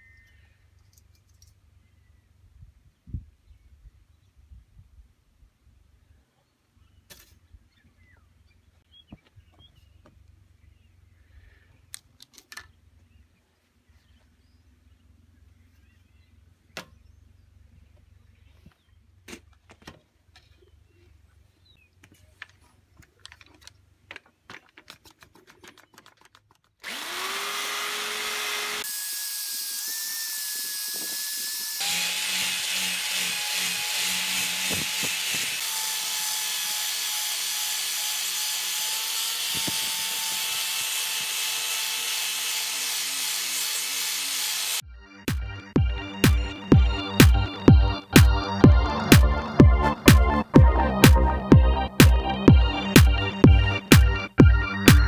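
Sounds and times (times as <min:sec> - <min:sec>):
handling clicks and knocks: 0:22.0 - 0:26.8
drill with wire brush scrubbing wood: 0:26.8 - 0:44.8.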